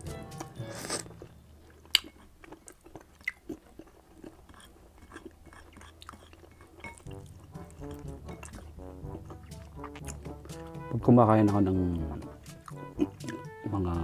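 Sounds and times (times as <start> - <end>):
person chewing and eating: 0.0 - 11.0, 11.9 - 13.6.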